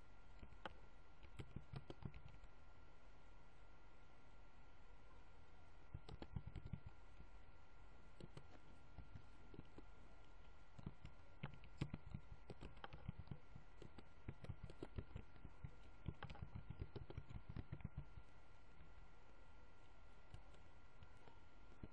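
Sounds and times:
faint high-pitched whine: 0.0s - 21.9s
keyboard typing clicks: 0.4s - 2.5s, 6.0s - 7.0s, 8.2s - 19.0s.

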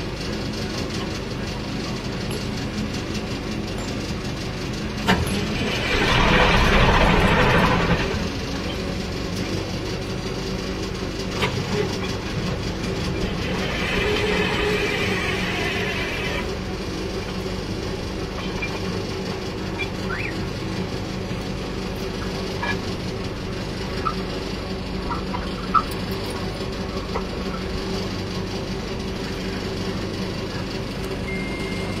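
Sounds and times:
drilling rig humming: 0.0s - 32.0s.

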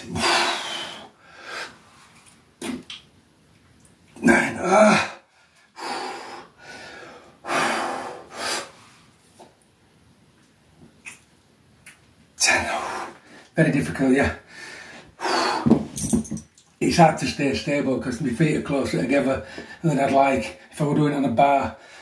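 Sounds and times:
man grunting: 4.2s - 5.2s.

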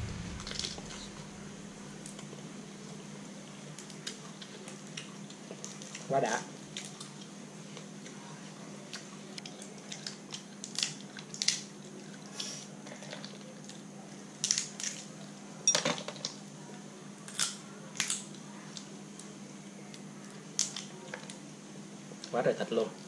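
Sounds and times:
low hum: 0.0s - 2.2s
crab shell cracking: 9.4s - 11.8s, 14.4s - 15.1s, 17.3s - 18.4s, 19.9s - 21.4s.

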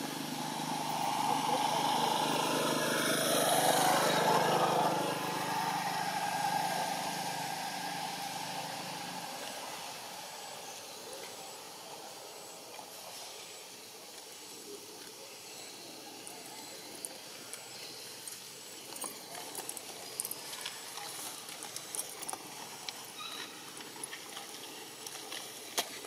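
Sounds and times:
outdoor background hiss: 0.0s - 26.0s
faint clicks and ticks: 18.2s - 23.1s.

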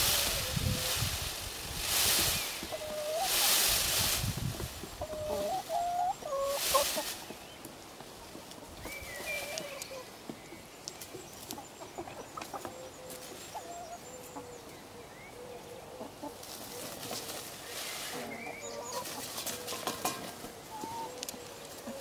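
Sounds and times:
peacock feather rustling: 0.0s - 7.8s
hens clucking: 0.0s - 10.4s, 11.1s - 22.0s.

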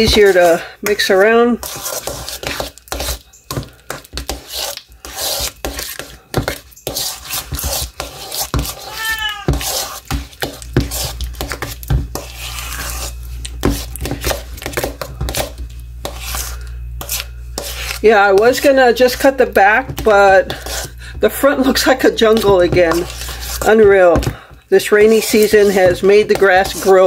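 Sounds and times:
utensil scraping steel bowl: 0.0s - 27.0s
cat meowing: 8.9s - 9.6s.

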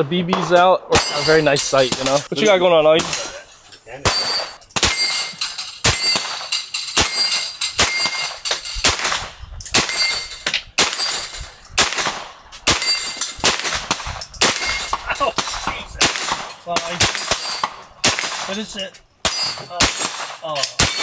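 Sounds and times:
steel plate ringing: 0.4s - 2.6s, 4.0s - 8.8s, 9.8s - 11.4s, 12.7s - 13.4s
rifle shots: 4.0s - 18.6s, 19.2s - 21.0s.

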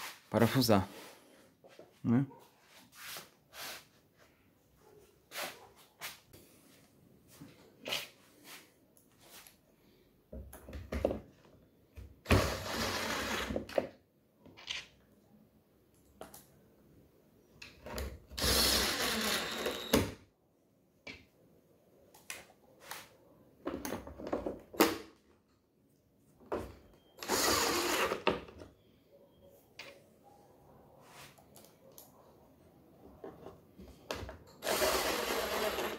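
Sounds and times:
cordless drill driving screws: 12.3s - 13.8s, 18.4s - 20.2s, 27.2s - 28.4s, 34.6s - 35.9s
drill clicks: 18.4s - 20.1s, 27.2s - 28.3s, 34.6s - 35.9s.

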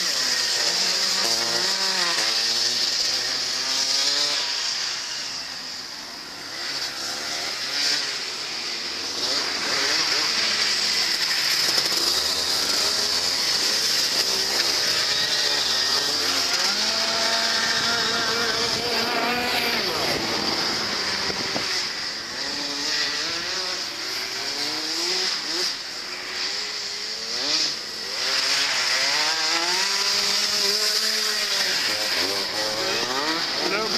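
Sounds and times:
go-kart engines revving: 0.0s - 33.9s.

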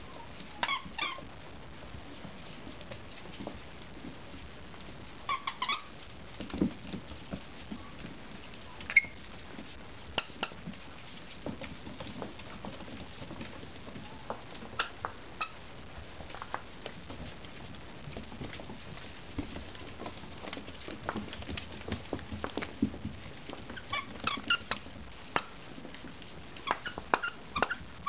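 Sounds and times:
puppy squeak: 8.9s - 9.2s.

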